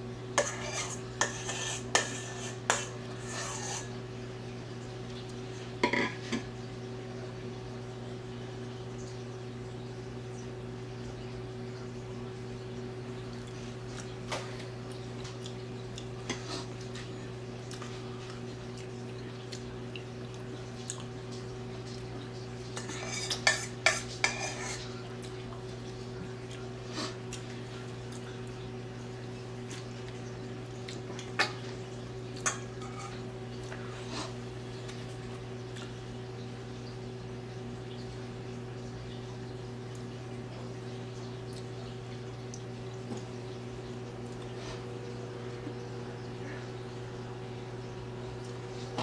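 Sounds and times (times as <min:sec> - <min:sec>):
dishes and utensils clinking: 0:05.8 - 0:06.5, 0:22.8 - 0:25.0, 0:32.4 - 0:33.2.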